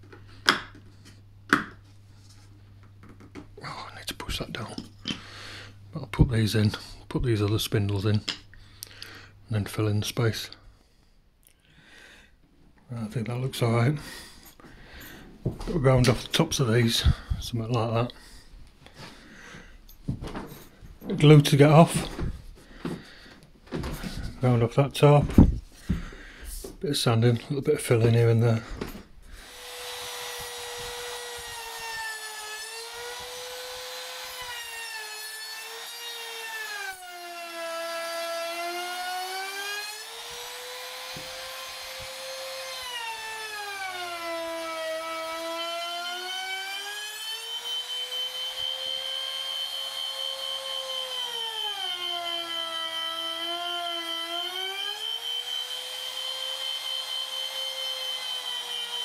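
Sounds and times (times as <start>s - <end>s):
router whining while cutting wood: 29.4s - 59.0s.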